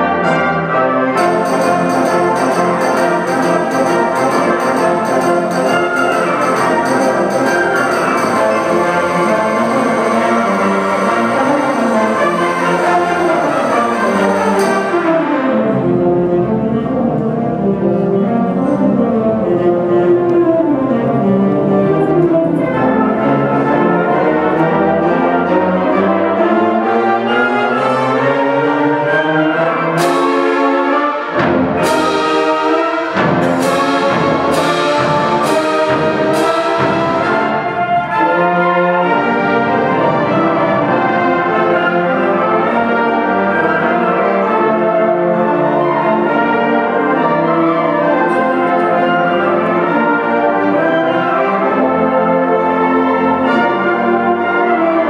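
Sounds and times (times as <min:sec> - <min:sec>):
wind band playing chords: 0:00.0 - 0:55.0
sharp accented strikes: 0:01.2 - 0:15.1, 0:30.0 - 0:37.8.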